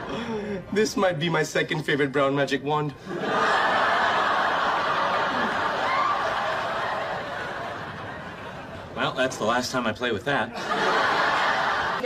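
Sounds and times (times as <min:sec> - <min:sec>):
audience laughing: 0:03.1 - 0:09.0, 0:10.5 - 0:12.0.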